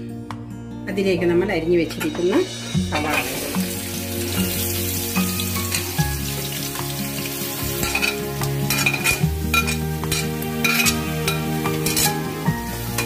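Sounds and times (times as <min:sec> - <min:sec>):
background music with low notes: 0:00.0 - 0:13.0
onions sizzling in hot oil: 0:02.6 - 0:13.0
spoon and plate scraping pot: 0:07.8 - 0:12.3.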